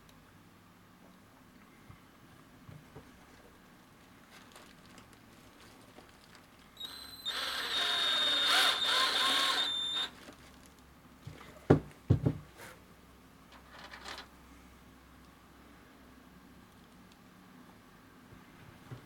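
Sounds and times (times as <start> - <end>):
cordless drill whining: 6.8 - 10.2.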